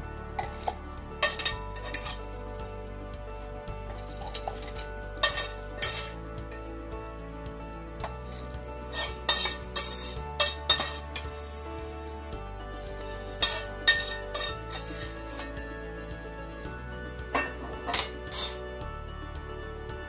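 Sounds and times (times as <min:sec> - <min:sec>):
soft background music: 0:00.0 - 0:20.0.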